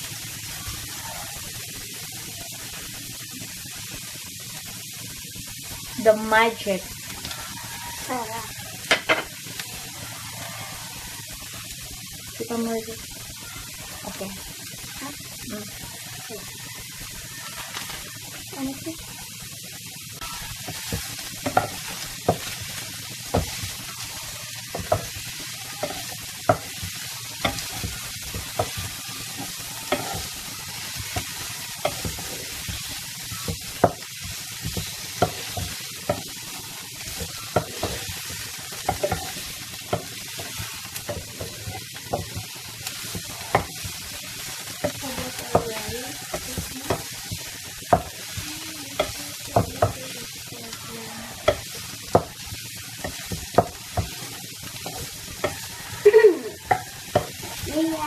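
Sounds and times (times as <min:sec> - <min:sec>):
vegetables sizzling in a frying pan: 0:00.0 - 0:58.0
wooden spatula scraping a pan: 0:24.7 - 0:42.4.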